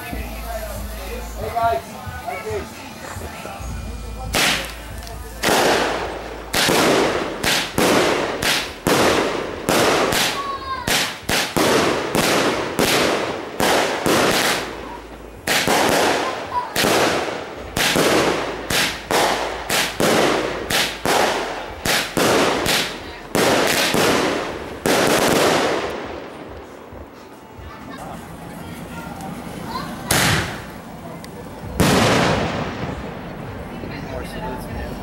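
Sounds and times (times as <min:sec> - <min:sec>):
firework bangs with echo: 0:04.2 - 0:26.6, 0:30.0 - 0:30.8, 0:31.7 - 0:33.5.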